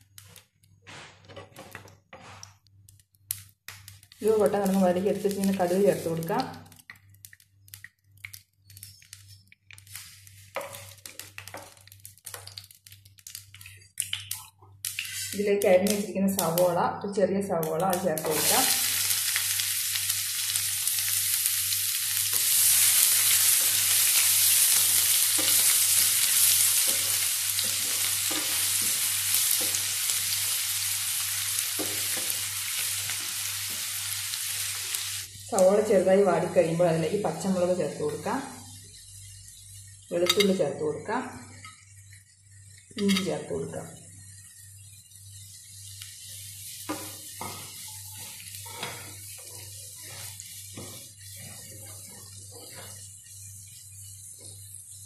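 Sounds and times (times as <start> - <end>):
onion sizzling in a frying pan: 1.2 - 55.0
spatula scraping a pan: 15.0 - 15.4, 22.3 - 29.9, 46.6 - 54.6.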